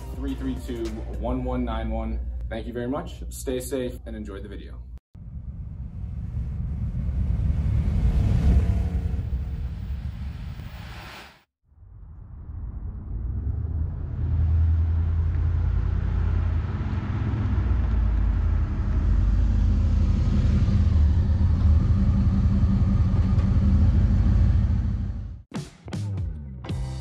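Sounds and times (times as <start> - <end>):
car engine running: 13.2 - 25.4.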